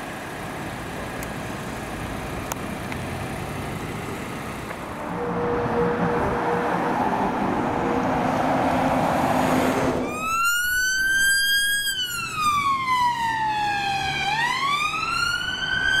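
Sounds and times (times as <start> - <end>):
passing vehicles: 0.0 - 16.0
siren wailing: 10.0 - 16.0.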